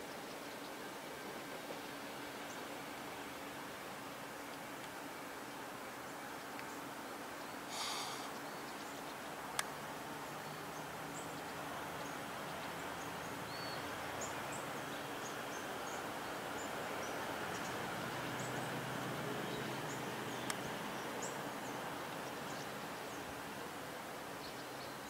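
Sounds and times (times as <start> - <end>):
faint steady hiss: 0.0 - 25.0
small birds chirping: 4.5 - 23.7.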